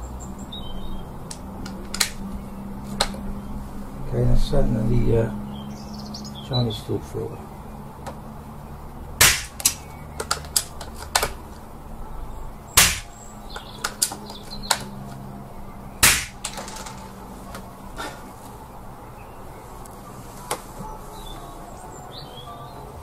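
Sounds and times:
suppressed air rifle shots: 9.2s - 9.9s, 12.8s - 13.2s, 16.0s - 16.8s.

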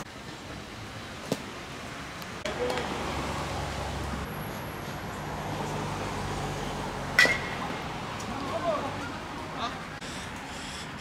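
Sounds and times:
sharp crack: 7.2s - 7.7s.

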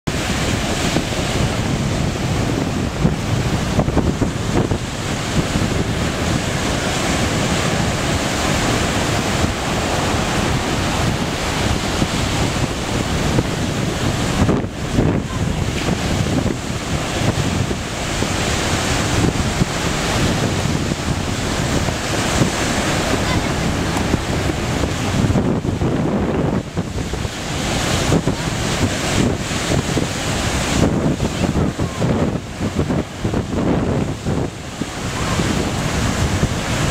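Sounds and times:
ocean surf breaking: 0.1s - 36.9s
wind buffeting microphone: 0.1s - 36.9s.

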